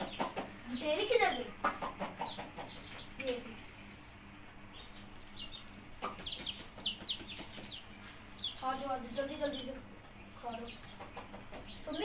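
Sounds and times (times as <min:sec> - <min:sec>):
chicks peeping: 0:00.0 - 0:12.0.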